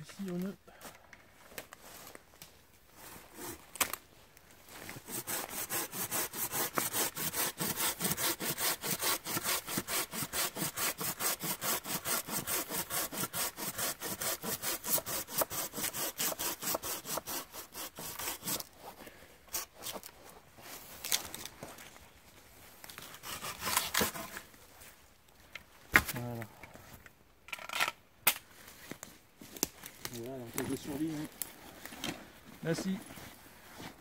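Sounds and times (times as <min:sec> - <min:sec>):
hand saw cutting wood: 0:04.9 - 0:20.1, 0:23.0 - 0:24.4.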